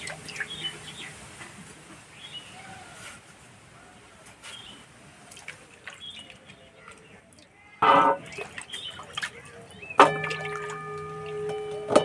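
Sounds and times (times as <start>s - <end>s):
potato pieces splashing in water: 8.2s - 11.5s.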